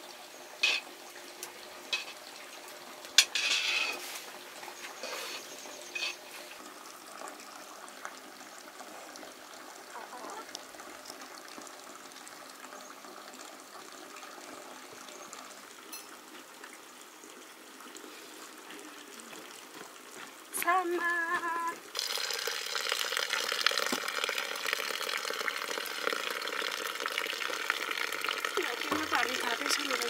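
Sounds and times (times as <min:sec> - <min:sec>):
faint water: 0:00.0 - 0:30.0.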